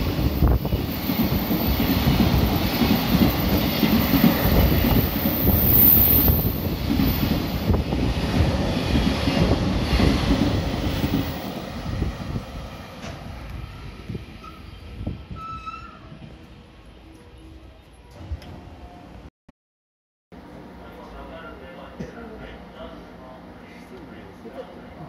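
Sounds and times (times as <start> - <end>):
freight train passing: 0.0 - 15.4.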